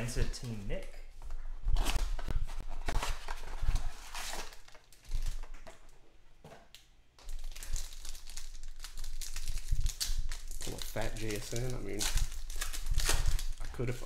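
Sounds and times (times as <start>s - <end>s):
foil wrappers tearing and crinkling: 2.8s - 5.6s, 7.2s - 14.0s.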